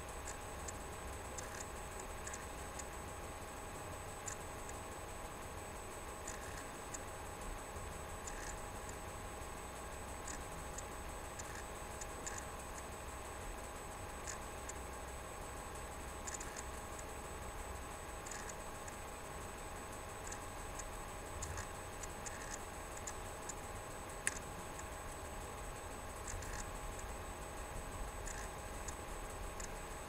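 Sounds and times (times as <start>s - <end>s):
electrical hum: 0.0s - 30.0s
faint sharp ticks: 1.4s - 2.9s, 8.2s - 9.0s, 10.2s - 12.9s, 14.2s - 14.8s, 18.2s - 19.0s, 20.2s - 23.6s, 24.2s - 24.9s, 28.2s - 29.8s.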